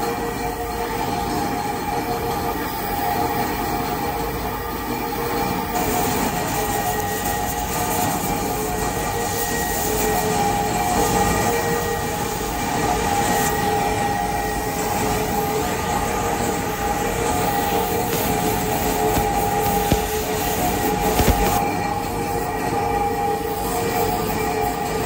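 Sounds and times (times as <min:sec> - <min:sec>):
cutting torch hissing: 0:05.8 - 0:21.7.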